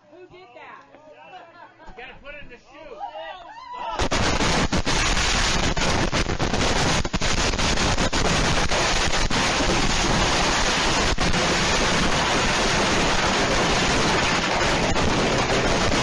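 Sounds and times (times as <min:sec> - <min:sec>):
fireworks hissing and crackling: 0:04.0 - 0:16.0.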